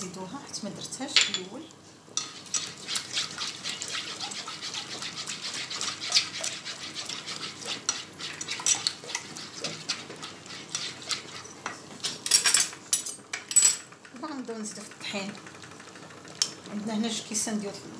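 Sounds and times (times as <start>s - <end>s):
whisk scraping and clicking in pan: 2.1s - 12.2s.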